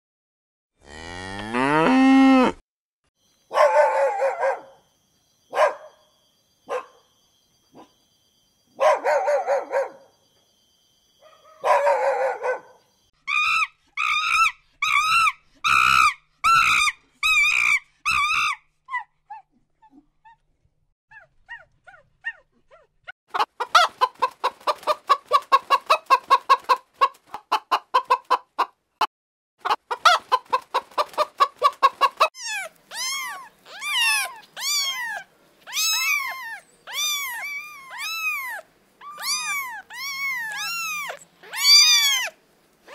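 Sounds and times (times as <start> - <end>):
repeated animal calls: 13.2 - 20.4, 32.3 - 42.9
cat meowing: 32.4 - 42.9.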